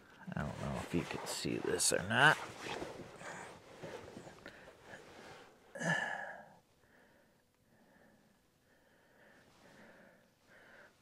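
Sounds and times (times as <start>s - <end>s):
quiet breathing: 2.9s - 11.0s
man sighing: 5.7s - 6.6s.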